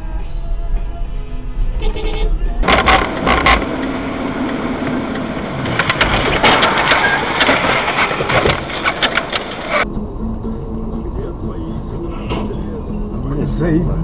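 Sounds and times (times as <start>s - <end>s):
music: 0.0s - 2.6s, 9.8s - 14.0s
road noise in car: 0.0s - 14.0s
clattering crunching knocks: 2.6s - 9.8s.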